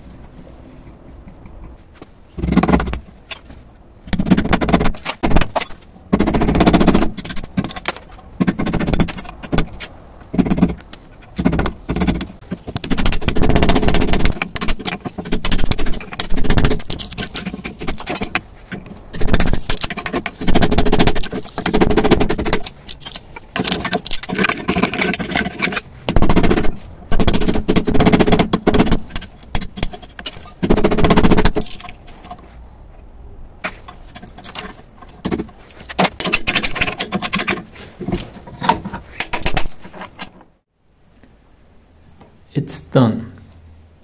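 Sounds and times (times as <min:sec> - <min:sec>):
screwdriver scraping metal case: 0:04.1 - 0:32.4, 0:33.6 - 0:40.4.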